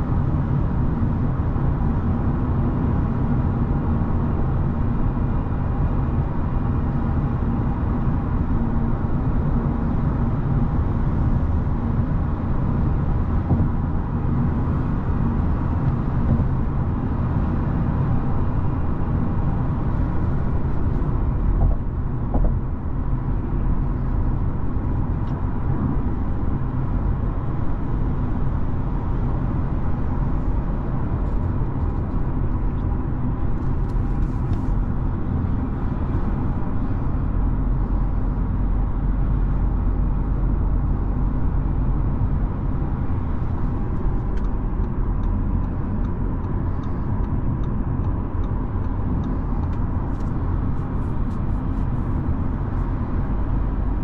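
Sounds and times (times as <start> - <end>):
car cabin road rumble: 0.0 - 54.0.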